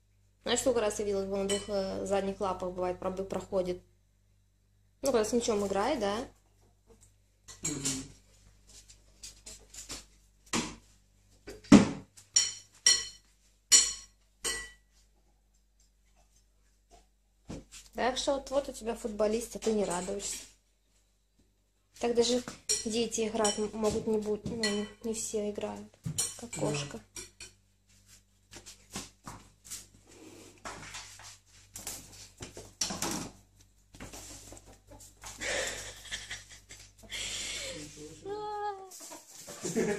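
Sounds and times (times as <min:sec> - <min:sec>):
cat scuffling on tiled floor: 0:08.3 - 0:11.0, 0:27.8 - 0:37.0.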